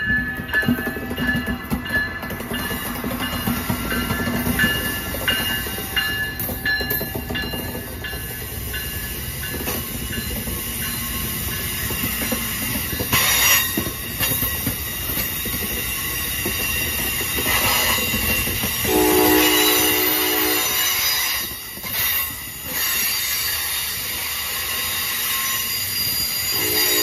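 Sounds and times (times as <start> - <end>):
train wheels rumbling on rails: 0.0 - 27.0
high wheel squeal: 15.3 - 27.0.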